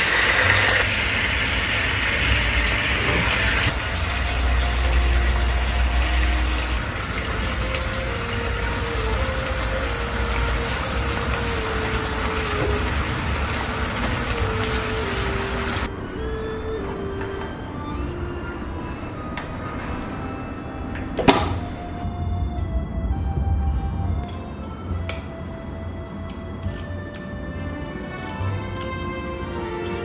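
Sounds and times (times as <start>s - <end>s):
sauce sizzling in frying pan: 3.7s - 15.9s.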